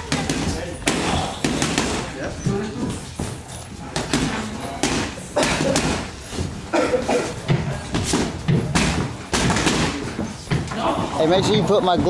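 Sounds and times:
gloves punching focus mitts: 7.4s - 10.7s.

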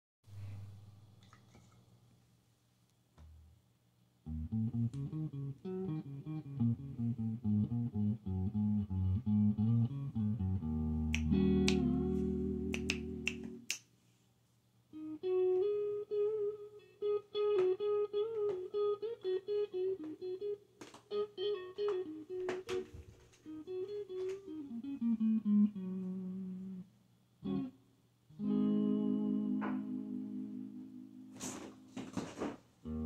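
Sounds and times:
electric guitar playing: 4.2s - 13.7s, 14.9s - 32.0s
bass line: 4.3s - 13.6s
finger snaps: 11.0s - 13.9s.

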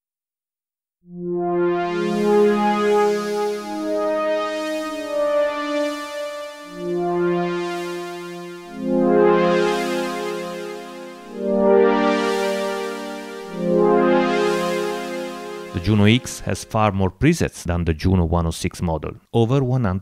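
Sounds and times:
synth pad chords: 1.1s - 16.7s.

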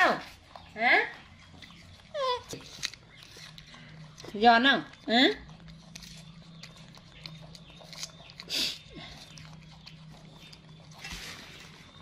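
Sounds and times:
faint low hum: 0.0s - 12.0s
monkeys crunching apples: 0.0s - 12.0s.

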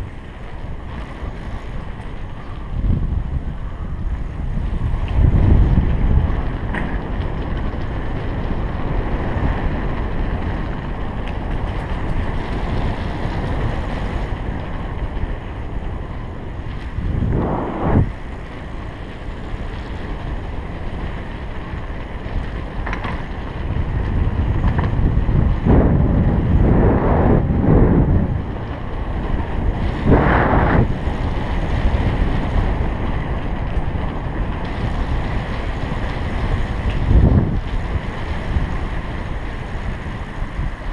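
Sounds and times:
bicycle tyres rumbling on cobblestones: 0.0s - 40.9s
wind buffeting microphone: 0.0s - 40.9s.

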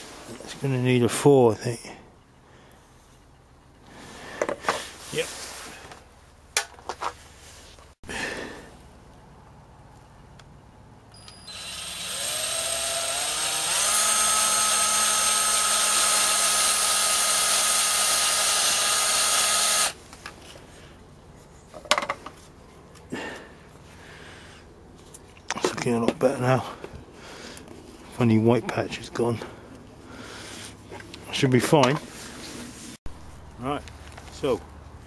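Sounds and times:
power drill drilling plastic: 11.2s - 20.0s.

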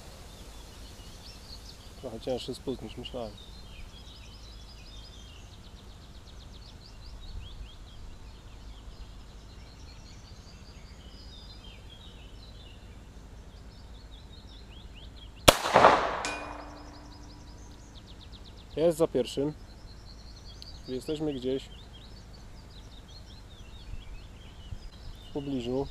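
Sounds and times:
pistol gunshot: 15.5s - 17.3s.

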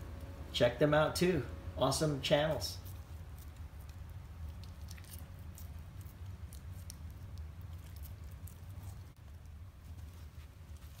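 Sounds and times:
dog licking and chewing meat: 2.9s - 11.0s.

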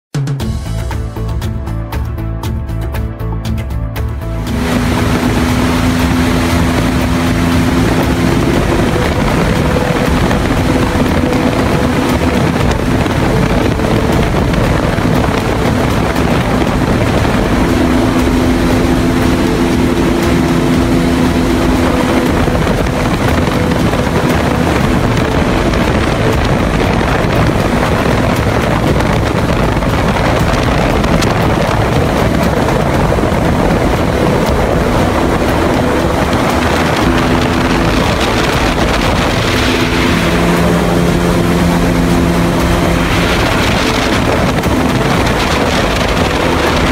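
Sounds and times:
airboat engine drone: 0.2s - 46.9s.

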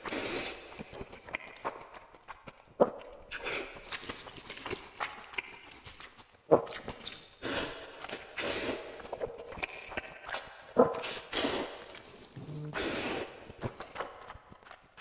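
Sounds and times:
person slurping noodles: 0.0s - 1.6s, 6.6s - 14.2s
person chewing: 0.0s - 15.0s.

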